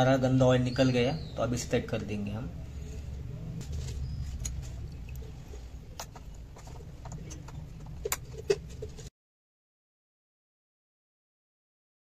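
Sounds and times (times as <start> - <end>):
low rumble: 2.6 - 6.5.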